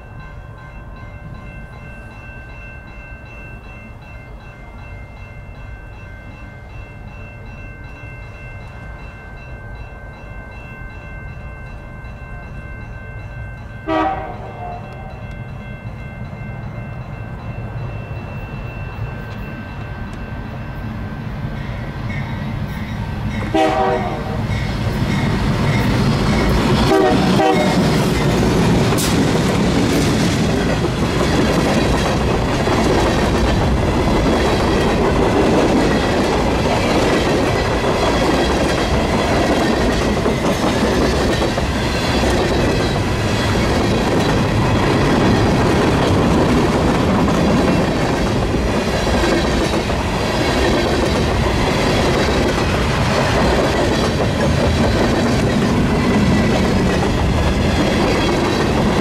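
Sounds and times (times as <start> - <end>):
diesel locomotives passing: 0.0 - 59.0
train horn chords: 13.8 - 15.3, 23.5 - 24.6, 26.8 - 27.9
train wheels clattering on rails: 21.8 - 59.0.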